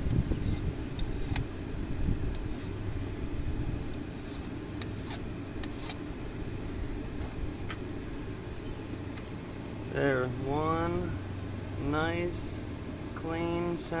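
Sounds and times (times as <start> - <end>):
steady low rumble: 0.0 - 14.0.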